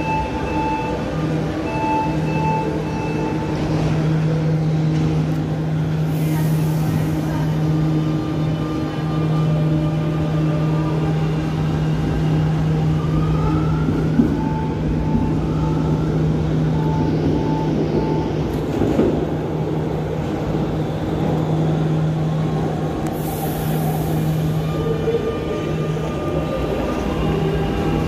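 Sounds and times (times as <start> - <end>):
short beeps: 0.0 - 3.6.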